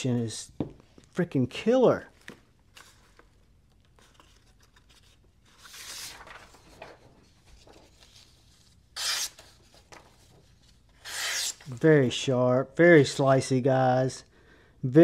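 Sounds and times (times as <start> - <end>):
knife slicing paper: 9.0 - 9.6, 11.0 - 11.8.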